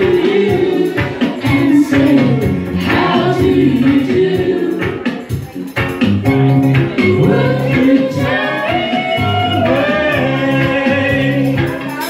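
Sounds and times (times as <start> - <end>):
voices singing held notes: 0.0 - 5.3, 6.7 - 12.0
instrumental backing track: 0.0 - 12.0.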